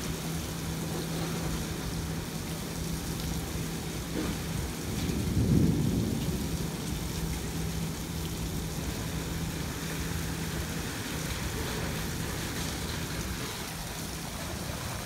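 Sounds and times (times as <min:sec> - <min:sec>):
rain falling: 0:00.0 - 0:15.0
thunder rumbling: 0:04.0 - 0:11.5.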